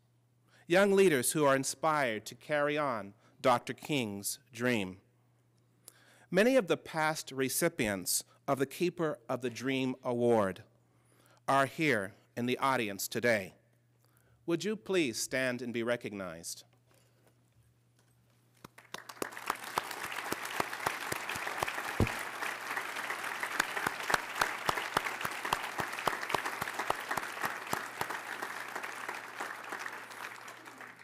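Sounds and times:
audience applauding: 0:18.6 - 0:31.0.

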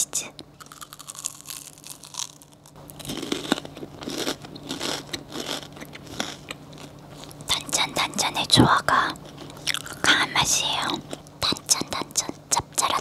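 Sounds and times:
faint low hum: 0:00.0 - 0:13.0
crunchy biting and chewing: 0:00.5 - 0:07.5, 0:09.2 - 0:10.1.

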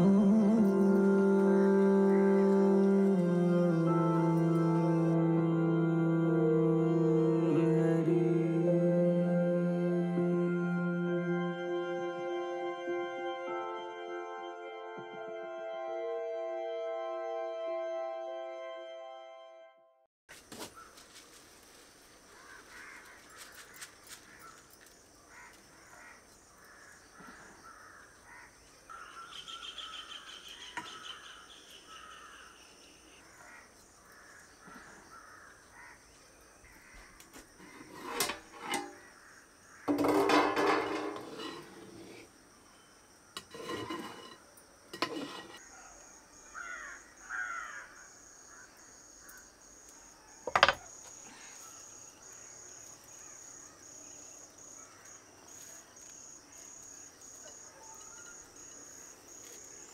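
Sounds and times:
cricket trill: 0:20.3 - 0:59.9
crows cawing: 0:22.3 - 0:24.6, 0:25.3 - 0:32.5, 0:33.3 - 0:36.1, 0:36.7 - 0:37.4, 0:46.5 - 0:49.5
birds calling: 0:25.3 - 0:36.0.

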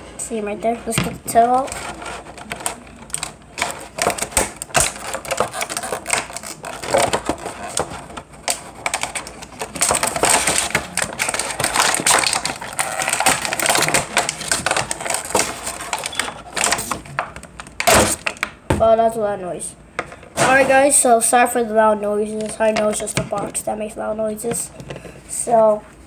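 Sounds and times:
plastic packaging crackling: 0:01.4 - 0:18.5.

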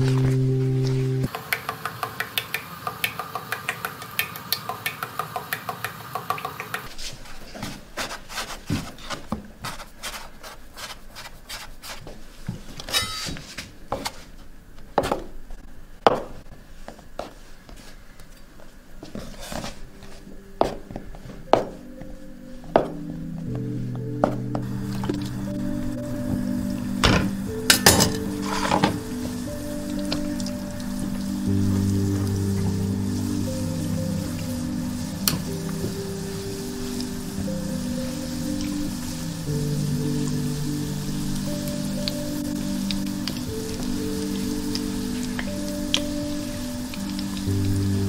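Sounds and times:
dough kneaded on wooden board: 0:06.8 - 0:12.8.

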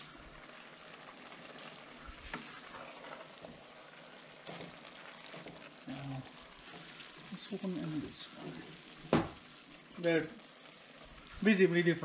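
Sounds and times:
stew simmering with bubbling hiss: 0:00.0 - 0:12.0
wooden spoon stirring and knocking: 0:01.6 - 0:09.4.

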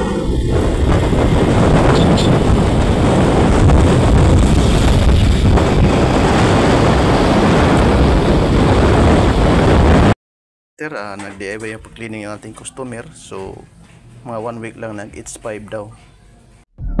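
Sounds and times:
road noise: 0:00.0 - 0:10.2, 0:11.2 - 0:16.6
wind buffeting the microphone: 0:00.0 - 0:10.2.

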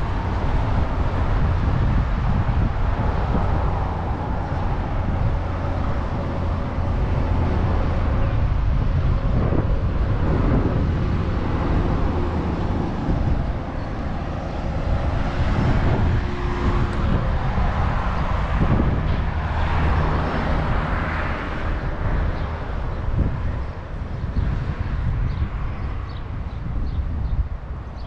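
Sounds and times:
vehicle engines running: 0:00.0 - 0:28.0.

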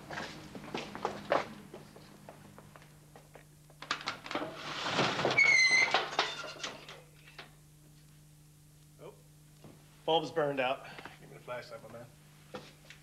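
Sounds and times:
footsteps: 0:00.0 - 0:03.8
door hinge squeak: 0:05.4 - 0:06.0
low steady hum: 0:05.9 - 0:13.0.

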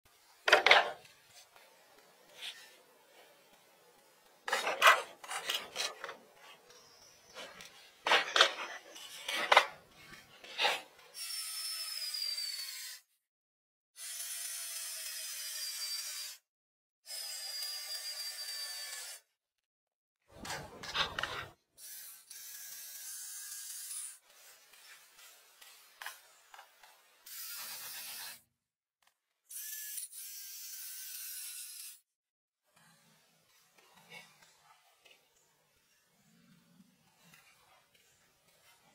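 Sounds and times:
wooden pallets scraping and knocking: 0:07.3 - 0:10.6.

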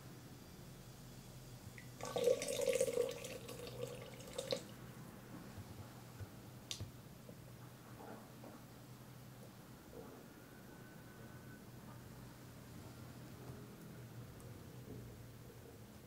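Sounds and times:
water pouring into kettle: 0:01.8 - 0:04.7.

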